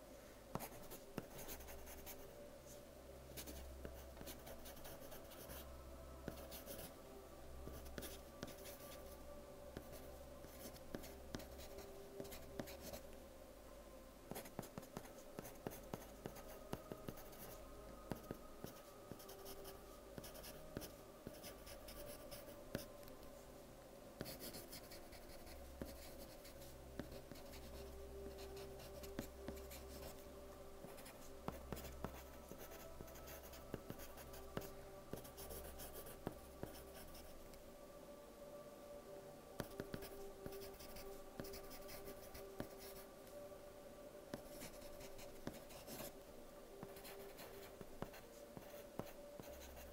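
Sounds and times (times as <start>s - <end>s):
pencil writing on paper: 0.6s - 2.2s, 14.3s - 19.6s, 30.8s - 37.3s, 39.6s - 43.0s, 44.4s - 46.1s, 46.8s - 49.8s.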